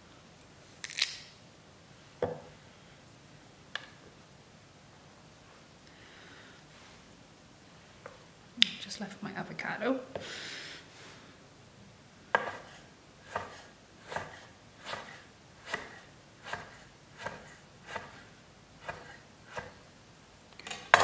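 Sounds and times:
knife knocking on wooden board: 0:02.2 - 0:02.5
knife slicing avocado: 0:12.4 - 0:19.8.

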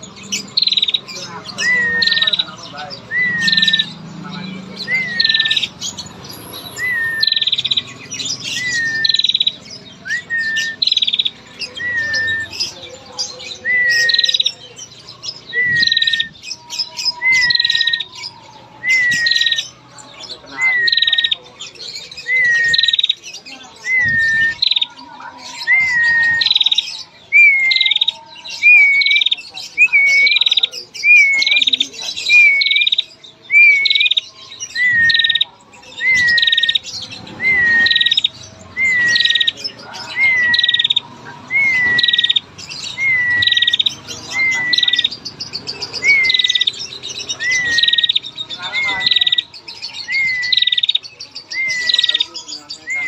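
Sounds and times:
bird calling buzzy trill and whistle: 0:01.6 - 0:04.0, 0:04.8 - 0:12.8, 0:25.6 - 0:45.2, 0:46.0 - 0:53.0.

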